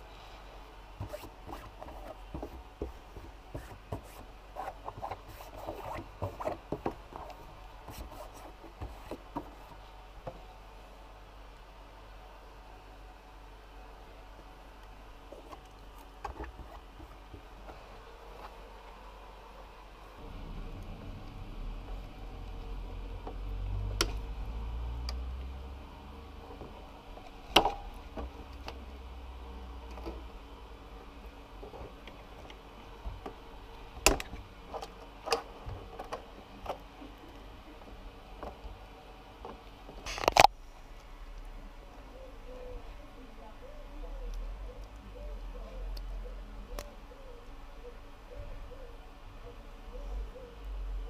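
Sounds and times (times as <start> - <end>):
low rumble: 20.2 - 26.5.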